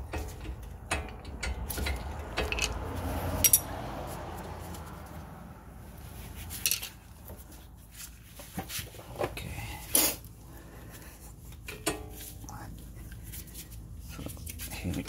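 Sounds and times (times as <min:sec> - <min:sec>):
metal clinks and knocks: 0:00.0 - 0:03.8, 0:06.5 - 0:07.0.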